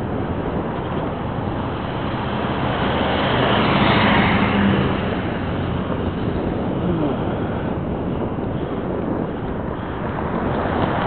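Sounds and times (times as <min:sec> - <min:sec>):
wind noise on microphone: 0:00.0 - 0:11.0
car passing: 0:01.0 - 0:11.0.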